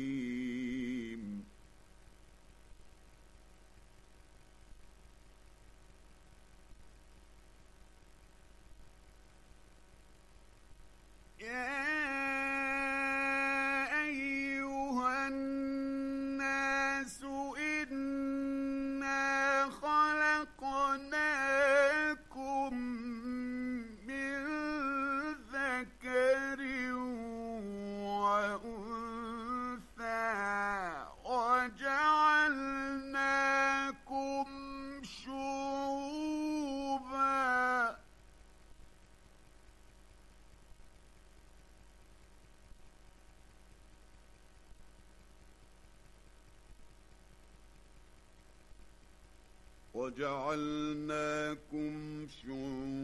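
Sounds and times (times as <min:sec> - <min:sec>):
man chanting: 0:00.0 - 0:01.5, 0:11.4 - 0:38.0, 0:50.0 - 0:53.0.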